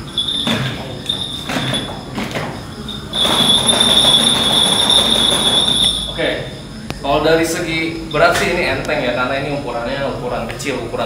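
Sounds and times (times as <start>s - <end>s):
small bells jingling: 0.0s - 6.8s.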